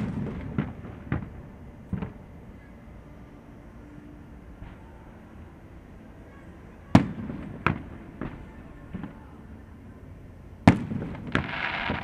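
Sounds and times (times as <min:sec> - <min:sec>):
fireworks bursting: 0:00.0 - 0:02.2, 0:10.6 - 0:12.0.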